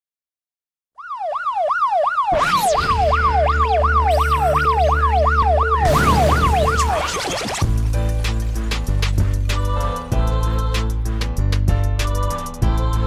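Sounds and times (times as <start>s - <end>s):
siren wailing up and down: 1.0s - 7.7s.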